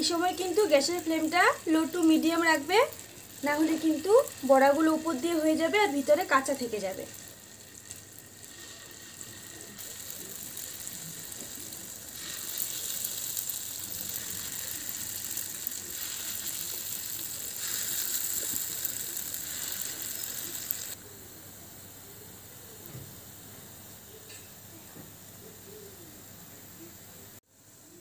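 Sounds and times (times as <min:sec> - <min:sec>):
batter sizzling in hot oil: 0:00.0 - 0:21.2.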